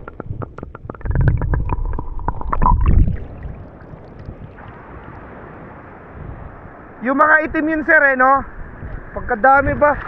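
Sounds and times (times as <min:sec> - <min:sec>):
sharp underwater clicks: 0:00.0 - 0:04.7
underwater rumbling of water: 0:00.0 - 0:10.0
wind hiss: 0:01.4 - 0:10.0.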